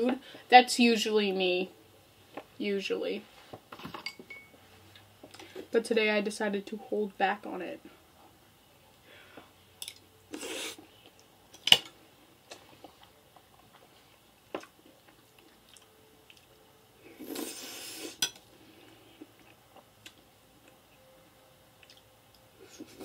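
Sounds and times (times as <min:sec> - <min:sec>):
close-up eating noises: 0:09.3 - 0:21.1, 0:21.7 - 0:23.0.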